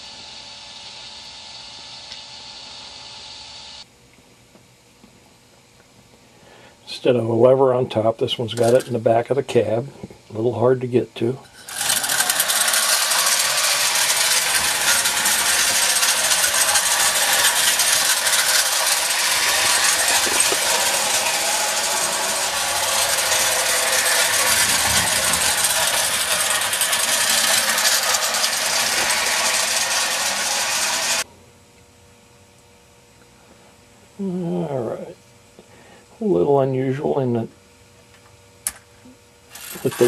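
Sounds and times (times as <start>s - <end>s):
toy train wheels rattling: 8.5s - 9.0s, 11.4s - 31.2s, 39.5s - 40.0s
clockwork gears whirring: 11.4s - 31.2s, 39.5s - 40.0s.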